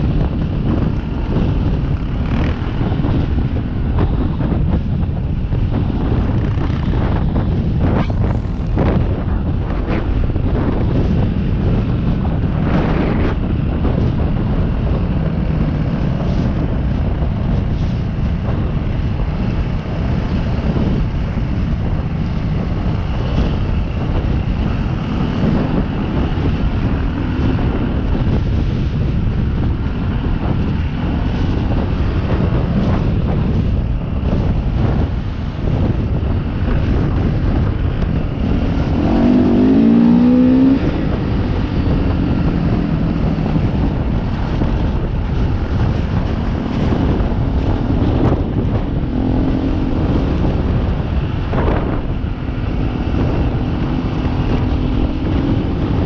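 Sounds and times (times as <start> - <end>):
wind rumble on microphone: 0.0 - 56.0
dirt bike engine revving: 0.6 - 4.5, 38.4 - 43.7.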